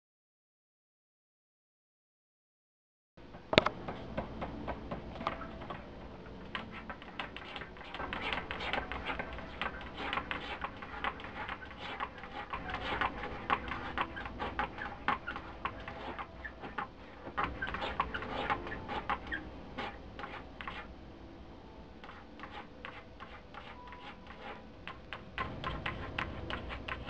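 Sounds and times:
cat claws scratching a shelf: 6.5s - 20.9s.

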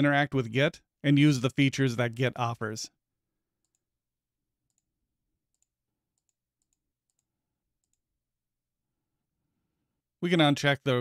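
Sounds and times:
computer mouse clicks: 5.5s - 8.1s.

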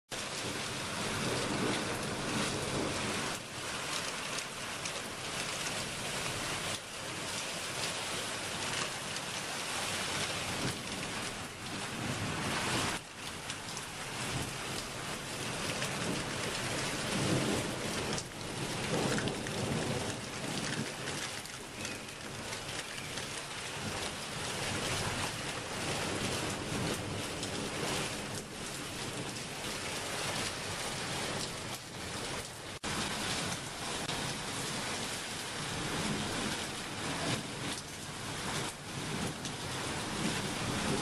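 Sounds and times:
rain on hard surfaces: 0.1s - 41.0s
thunder rumbling: 0.2s - 3.5s, 38.4s - 41.0s.

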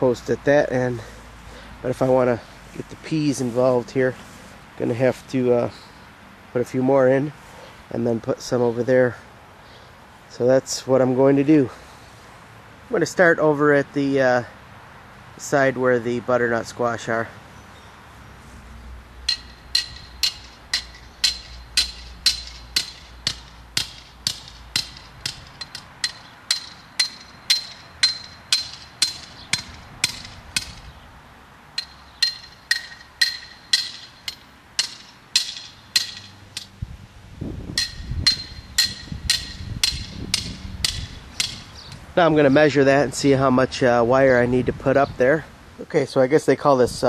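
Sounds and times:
hammer striking metal fence posts: 19.2s - 31.0s, 31.7s - 36.8s, 37.7s - 42.1s.

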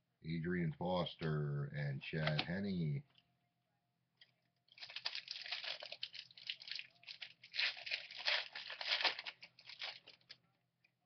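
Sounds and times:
foil wrapper tearing and crinkling: 4.7s - 10.4s.

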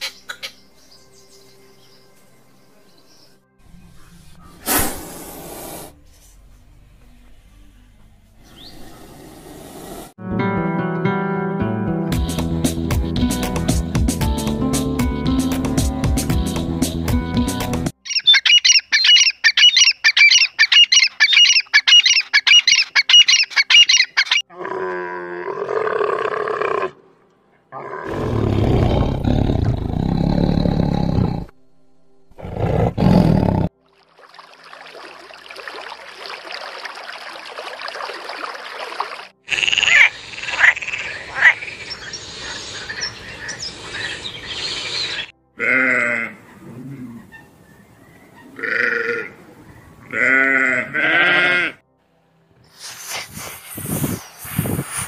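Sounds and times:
partridge calling: 0.0s - 0.6s, 18.0s - 24.4s, 39.8s - 45.3s
tiger roaring and growling: 27.7s - 31.5s, 32.4s - 33.7s
goat bleating: 45.6s - 46.4s, 48.6s - 49.4s, 50.1s - 51.8s.

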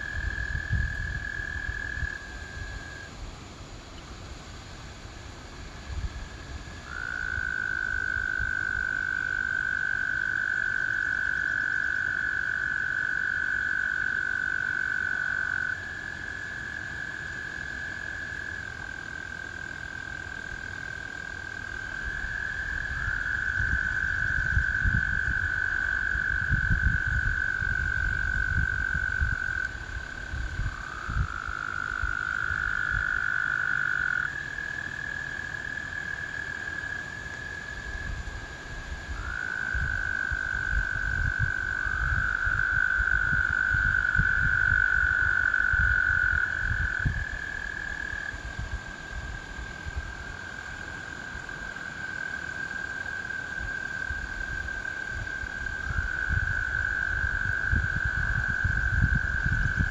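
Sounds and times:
toads trilling: 39.1s - 48.4s.

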